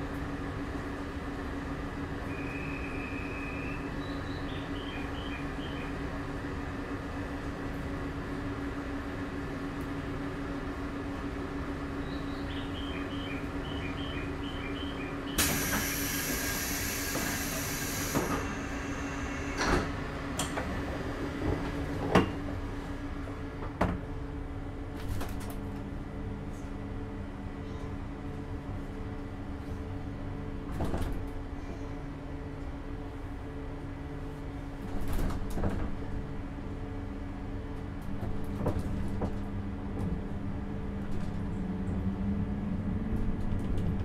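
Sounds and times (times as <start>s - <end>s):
train equipment hum: 0.0s - 44.0s
train doors thudding shut: 15.3s - 22.4s, 30.6s - 31.4s, 34.8s - 36.2s
compressed air hiss: 15.4s - 19.4s.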